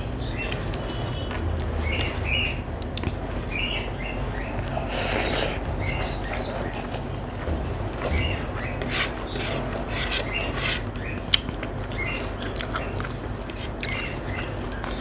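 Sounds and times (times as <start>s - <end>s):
chewing and lip smacks: 2.8s - 3.2s, 11.3s - 14.0s.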